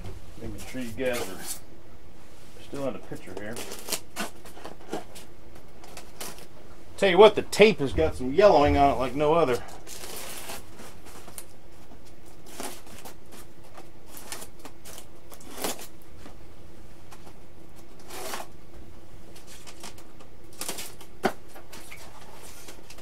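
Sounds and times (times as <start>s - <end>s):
low steady hum: 0.0s - 23.0s
rustles and scrapes of styrofoam box: 0.4s - 1.6s, 8.8s - 16.3s, 17.8s - 18.6s, 21.7s - 23.0s.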